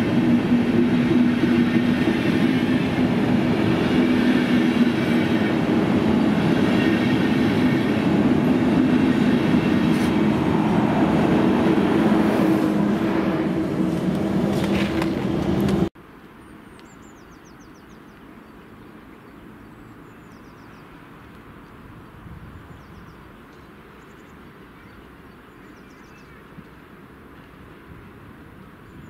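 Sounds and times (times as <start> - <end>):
electric locomotive humming: 0.0 - 15.9
small birds chirping: 22.6 - 26.6.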